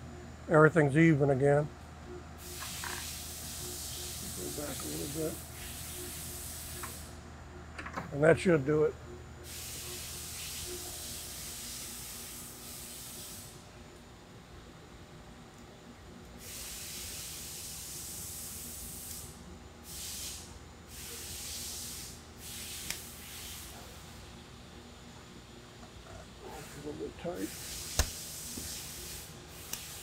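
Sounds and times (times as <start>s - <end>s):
bursts of hissing noise: 2.4s - 7.2s, 26.5s - 30.0s.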